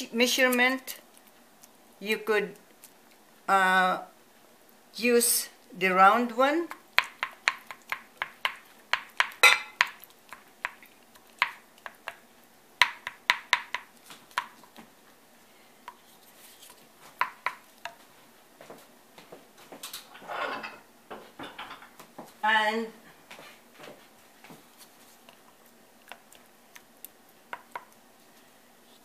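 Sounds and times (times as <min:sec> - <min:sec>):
wooden spatula knocking on glass dish: 0:12.8 - 0:14.6.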